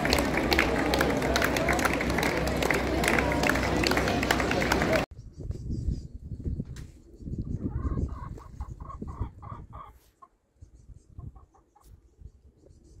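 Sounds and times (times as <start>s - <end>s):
chickens clucking: 7.5s - 10.4s, 11.1s - 12.0s.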